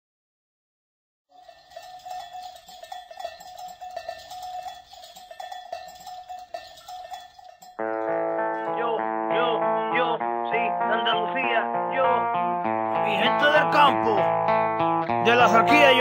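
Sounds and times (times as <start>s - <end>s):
livestock bells clanking: 1.3s - 9.1s
acoustic guitar music: 1.4s - 16.0s.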